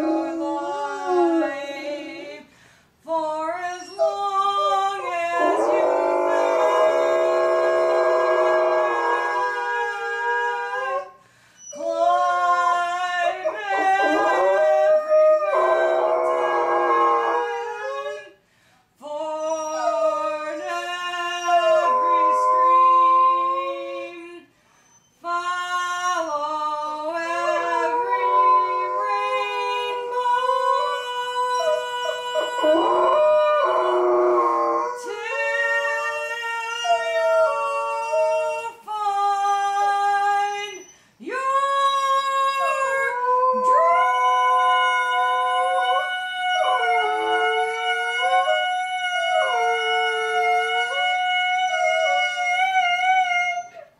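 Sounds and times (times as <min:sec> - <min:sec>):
woman singing: 0:00.0 - 0:07.2, 0:11.7 - 0:18.4, 0:19.0 - 0:24.5, 0:25.2 - 0:53.7
dog howling: 0:03.8 - 0:18.3, 0:19.4 - 0:23.9, 0:26.3 - 0:38.6, 0:42.3 - 0:53.9.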